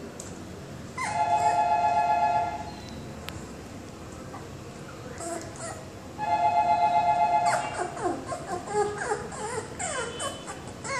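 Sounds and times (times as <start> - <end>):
puppy whimpering: 1.0 - 1.7, 5.1 - 5.9, 7.4 - 10.9.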